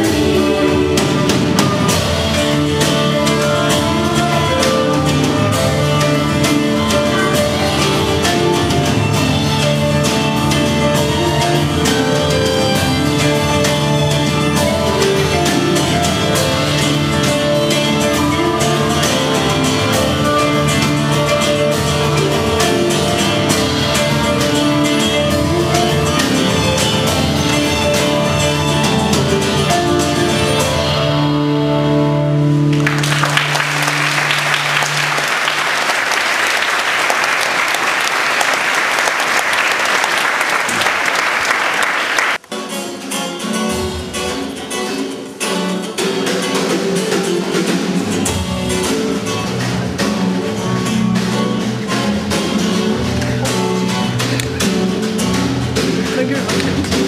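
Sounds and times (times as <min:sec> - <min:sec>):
acoustic guitar song: 0:00.0 - 0:35.6, 0:42.4 - 0:57.0
band playing a carol: 0:00.0 - 0:57.0
audience applauding: 0:32.7 - 0:42.5.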